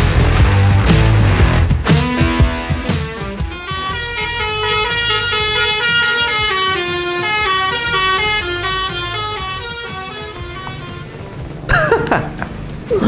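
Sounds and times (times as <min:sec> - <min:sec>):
toy bus horn melody: 0:03.5 - 0:11.5.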